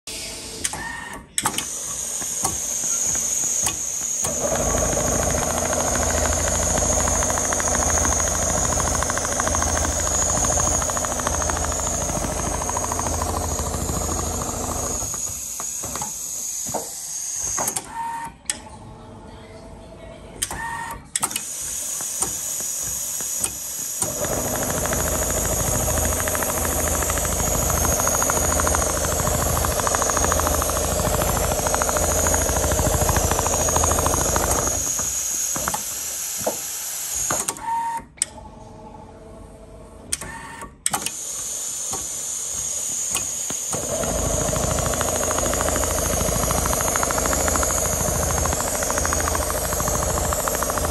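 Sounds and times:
sewing machine needle rhythm: 0:00.9 - 0:16.2, 0:20.5 - 0:35.8, 0:43.0 - 0:50.9
low machine hum: 0:04.3 - 0:15.4, 0:18.4 - 0:20.5, 0:24.1 - 0:35.2, 0:43.8 - 0:50.9.

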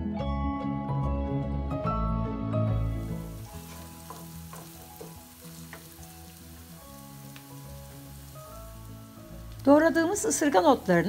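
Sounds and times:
soft background music: 0:00.0 - 0:11.0
onions sizzling in oil: 0:02.8 - 0:11.0
wooden spoon stirring: 0:03.1 - 0:08.5.

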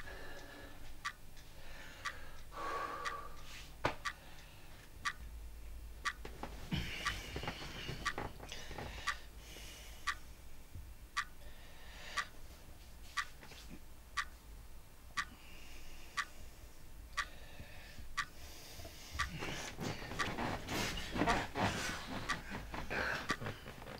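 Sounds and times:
clock ticking: 0:00.0 - 0:09.3, 0:10.0 - 0:10.3, 0:11.1 - 0:11.4, 0:12.0 - 0:12.4, 0:13.1 - 0:14.4, 0:15.1 - 0:15.4, 0:16.1 - 0:16.4, 0:17.1 - 0:17.4, 0:18.0 - 0:23.9
bedclothes rustling: 0:19.4 - 0:23.9.

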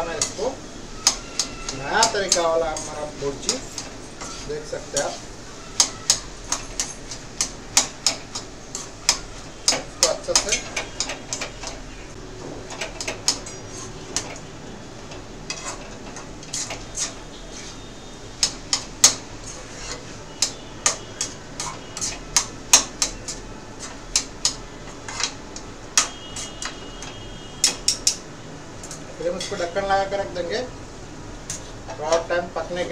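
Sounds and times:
metal spatula scraping metal pan: 0:00.0 - 0:11.9, 0:12.8 - 0:14.5, 0:15.1 - 0:28.2.

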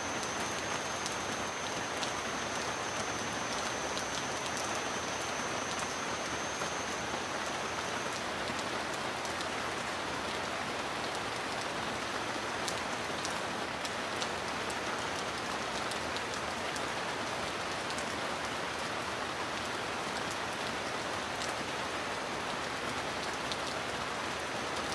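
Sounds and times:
heavy rain hissing: 0:00.0 - 0:17.7
sharp raindrop ticks: 0:00.1 - 0:09.5.

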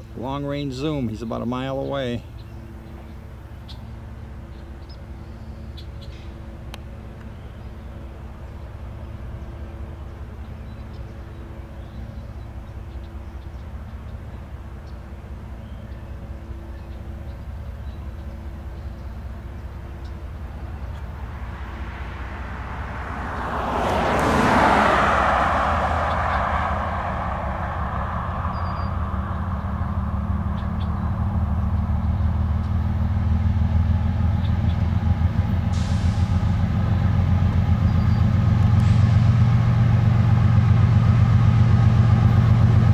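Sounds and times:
diesel locomotive engine drone: 0:00.0 - 0:42.9
loud whoosh: 0:21.1 - 0:31.6.

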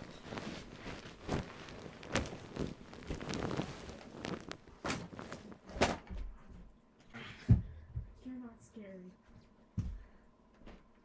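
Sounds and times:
shuffling movement: 0:00.0 - 0:05.7
footsteps soft thuds: 0:09.3 - 0:10.9.

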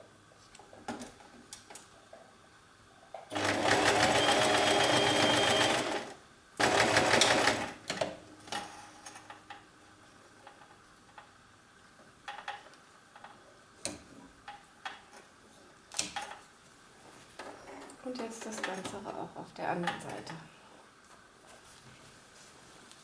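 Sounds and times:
electric sewing machine running: 0:03.3 - 0:07.8.

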